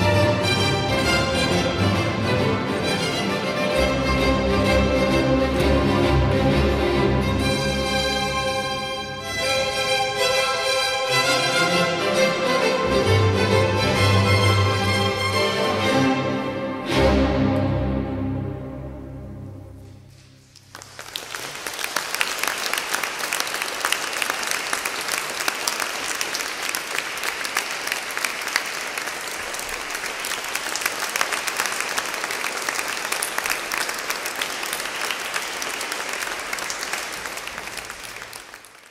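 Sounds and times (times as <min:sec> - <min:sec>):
audience applause: 0:20.5 - 0:38.9.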